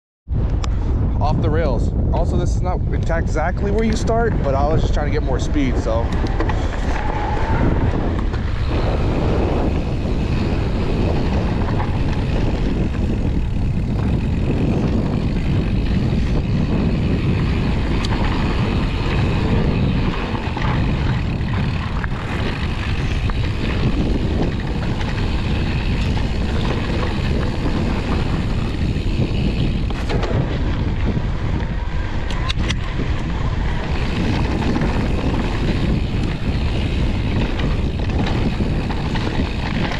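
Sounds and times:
bike tyre rumble: 0.3s - 39.9s
wind rushing on microphone: 0.3s - 39.9s
sharp clicks: 32.2s - 33.3s.

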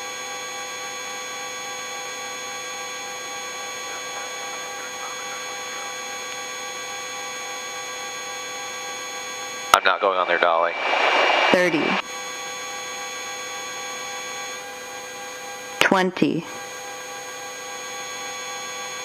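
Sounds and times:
helicopter cabin hum: 2.6s - 19.0s
high steady tones: 10.0s - 12.1s.

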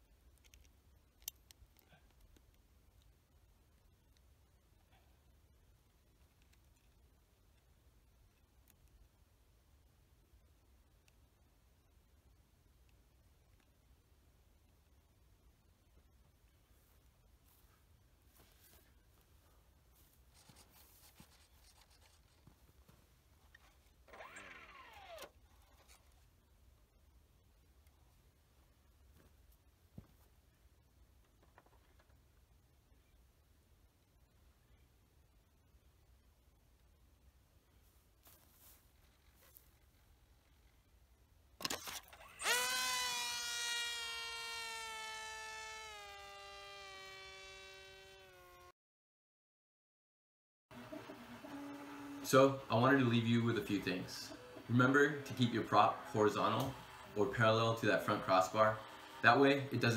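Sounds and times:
electric motor and propeller whine: 41.7s - 48.7s, 50.8s - 59.9s.

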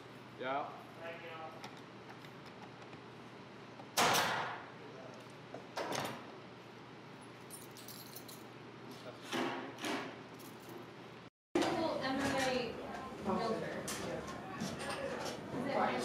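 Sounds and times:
nail gun shots into wood: 4.0s - 4.6s.

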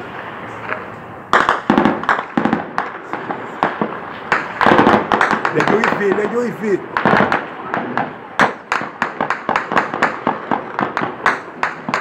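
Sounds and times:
rapid gunshots: 3.6s - 12.0s.

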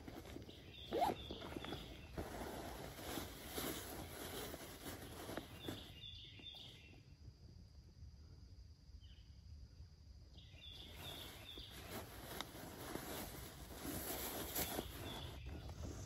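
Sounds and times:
rustling in dry leaves: 0.0s - 6.3s, 10.8s - 16.0s
faint bird chirps: 0.0s - 16.0s.

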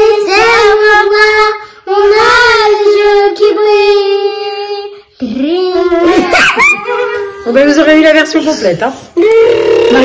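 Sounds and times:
child singing: 0.0s - 7.5s.

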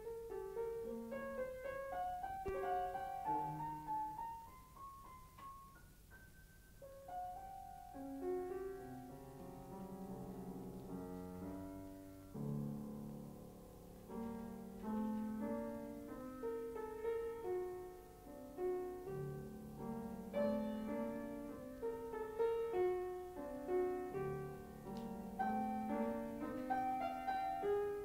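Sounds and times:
solo piano: 0.0s - 28.0s.

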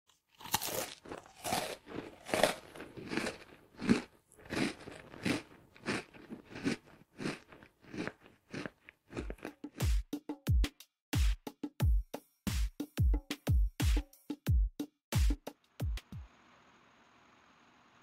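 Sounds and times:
crunching and chewing crisp food: 0.1s - 10.0s.

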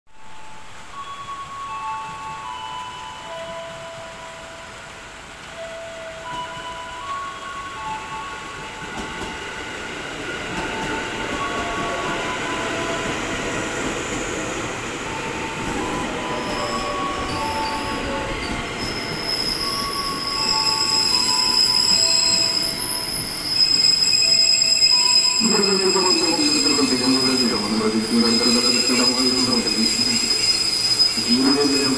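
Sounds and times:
electric train slowing: 0.1s - 31.9s
high-pitched brake squeal: 15.2s - 31.9s.

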